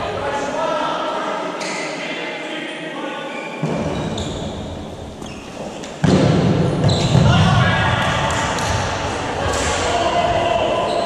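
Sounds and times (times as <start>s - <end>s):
voices echoing in a hall: 0.0s - 11.0s
balls thudding on floor: 6.0s - 8.9s.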